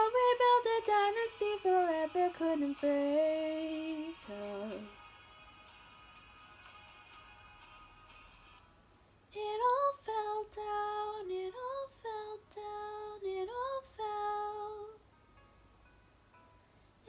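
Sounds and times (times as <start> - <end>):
woman singing solo: 0.0 - 4.9.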